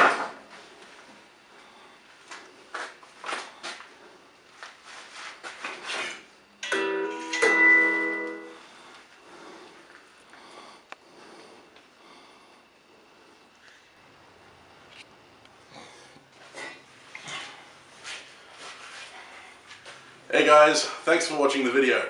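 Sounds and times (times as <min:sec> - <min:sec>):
phone message alert chime: 0:06.8 - 0:08.6.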